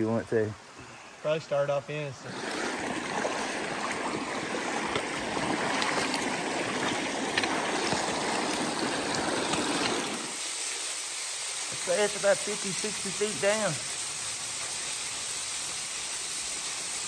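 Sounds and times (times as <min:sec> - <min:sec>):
creek water rushing over rocks: 0:02.2 - 0:17.0
boots splashing in water: 0:02.3 - 0:10.3.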